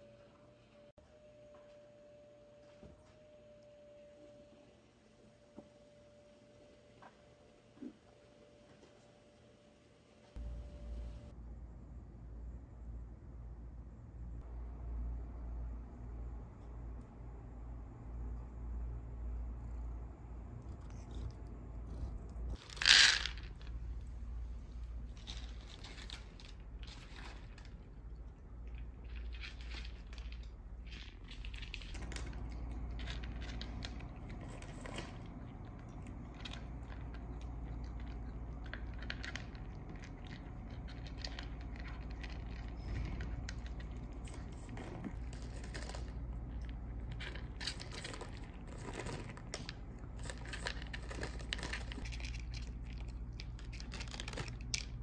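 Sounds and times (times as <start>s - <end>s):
low steady hum: 0.0s - 55.0s
cat crunching kibble: 20.6s - 23.9s, 25.0s - 55.0s.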